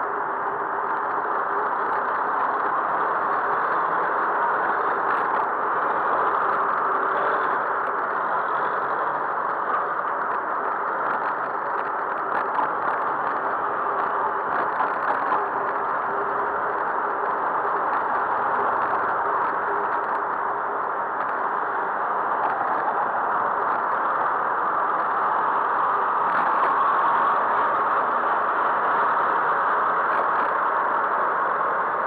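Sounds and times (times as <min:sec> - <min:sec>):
rushing noise of bicycle riding: 0:00.0 - 0:32.0.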